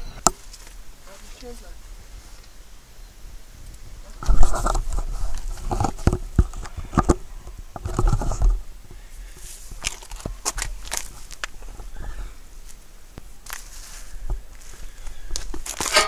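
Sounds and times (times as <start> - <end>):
microphone handling noise: 3.6 - 12.3.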